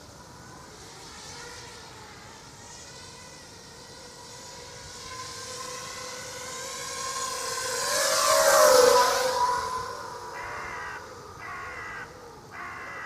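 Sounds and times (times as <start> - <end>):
drone motors whining: 0.1 - 13.0.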